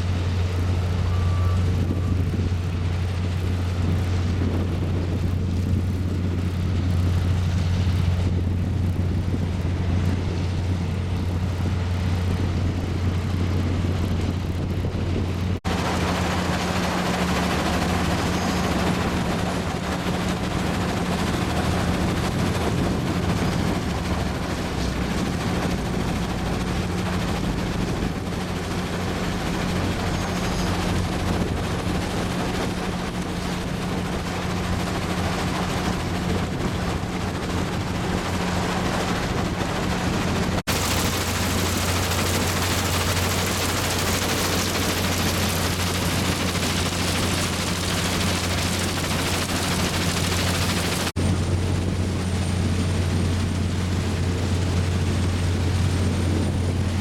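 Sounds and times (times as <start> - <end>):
low machine hum: 0.0 - 57.0
crackly rattling noise: 15.3 - 51.2.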